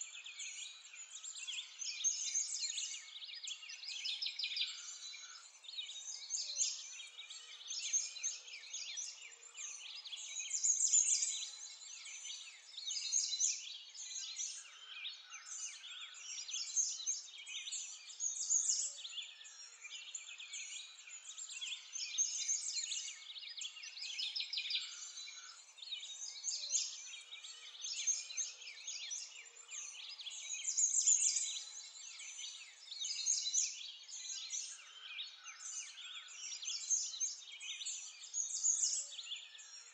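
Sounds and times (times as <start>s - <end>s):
songbirds chirping and trilling: 0.0s - 39.9s.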